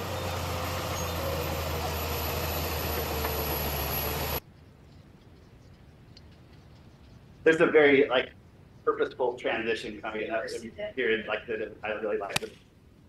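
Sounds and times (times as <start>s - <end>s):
bulldozer diesel engine droning: 0.0s - 4.4s.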